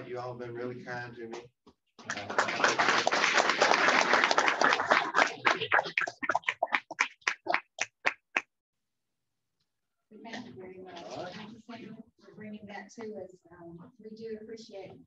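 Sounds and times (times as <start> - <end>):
audience applauding: 2.0 - 8.4.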